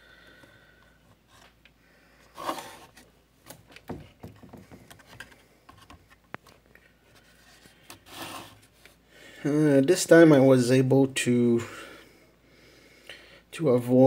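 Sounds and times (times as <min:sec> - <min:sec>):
rustling scrape: 0:02.3 - 0:03.1, 0:07.1 - 0:09.0
soft taps and scrapes: 0:02.4 - 0:09.0.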